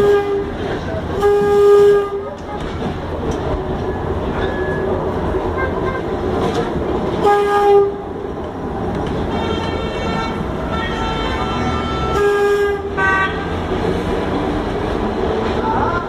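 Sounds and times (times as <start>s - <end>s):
tram horn blasts: 0.0s - 2.7s, 4.4s - 8.2s, 9.2s - 14.1s
tram rumbling on track: 0.0s - 16.0s.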